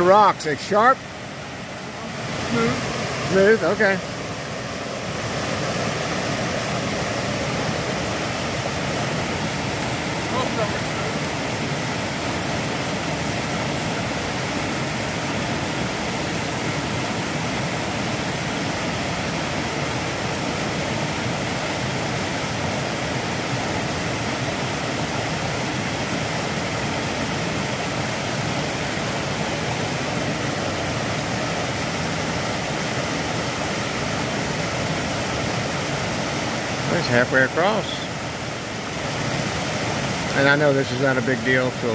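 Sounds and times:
rushing stream water: 0.0s - 41.9s.

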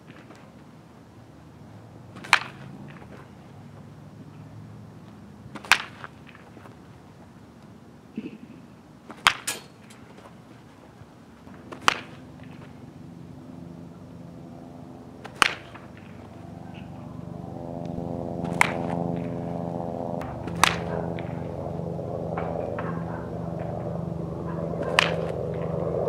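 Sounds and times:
motor-like hum: 0.0s - 26.0s
baseball bat hitting ball: 2.1s - 3.3s, 5.5s - 6.8s, 9.1s - 10.3s, 11.5s - 12.9s, 15.2s - 16.9s, 18.0s - 19.5s, 20.2s - 25.6s.

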